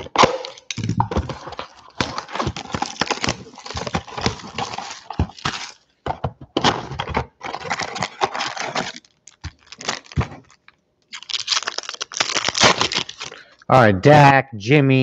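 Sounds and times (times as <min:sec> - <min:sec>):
cardboard box tearing: 0:00.0 - 0:05.8, 0:06.6 - 0:10.5, 0:11.2 - 0:13.3.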